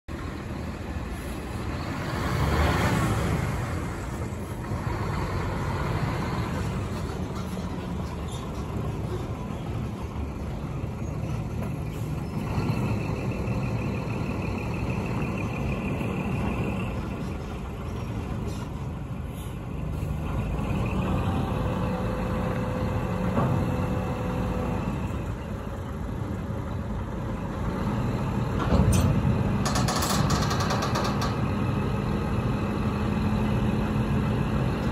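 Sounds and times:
truck diesel engine: 0.1 - 34.9
air brakes hissing: 18.5 - 20.2.

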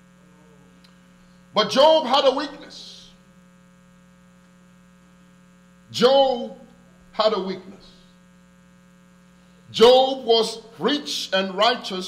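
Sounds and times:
electrical mains hum: 0.0 - 12.0
man's voice: 1.6 - 3.2, 5.9 - 8.0, 9.7 - 12.0.

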